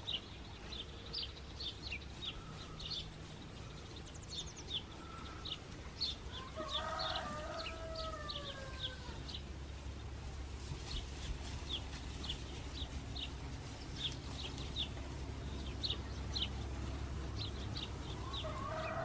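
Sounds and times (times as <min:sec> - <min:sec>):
small birds chirping: 0:00.0 - 0:19.0
rooster crowing: 0:06.3 - 0:09.4, 0:18.1 - 0:19.0.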